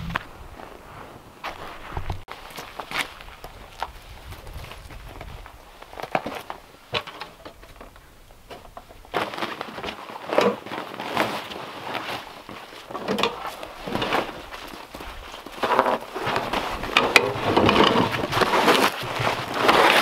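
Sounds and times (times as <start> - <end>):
fabric cover rustling and crunching: 9.0 - 20.0.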